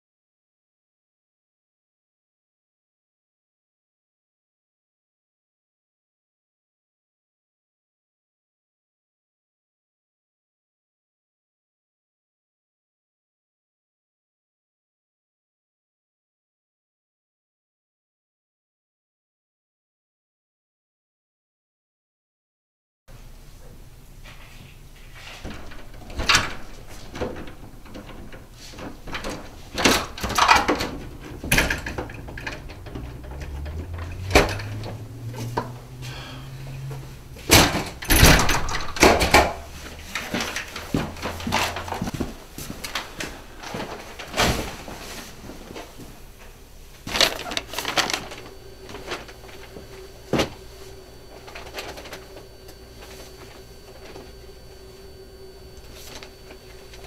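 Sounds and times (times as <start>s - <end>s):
household objects clattering: 25.3s - 35.8s
low hum rising in pitch: 31.0s - 37.4s.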